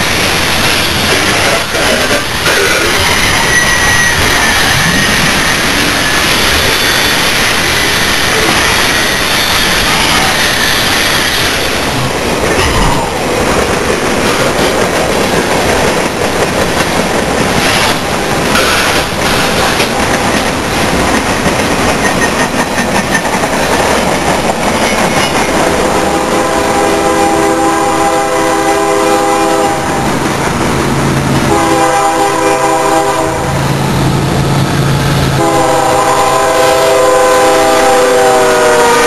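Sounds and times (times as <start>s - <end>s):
freight cars rolling on rails: 0.0s - 39.0s
locomotive air horn: 26.0s - 30.0s, 31.5s - 33.6s, 35.3s - 39.0s.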